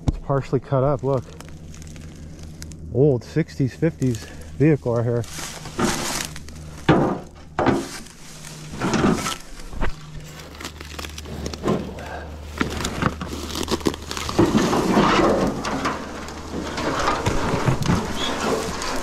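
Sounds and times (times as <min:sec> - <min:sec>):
footsteps crunching on rock and brush: 0:00.8 - 0:02.9, 0:03.9 - 0:15.6.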